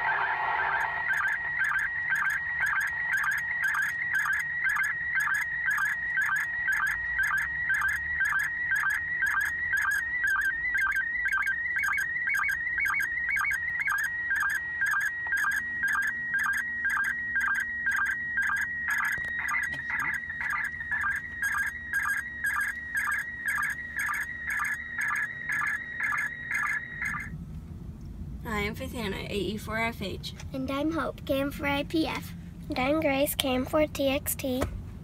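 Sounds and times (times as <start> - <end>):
short lower beeps: 0.0 - 27.3
warbling radio tone: 0.0 - 27.4.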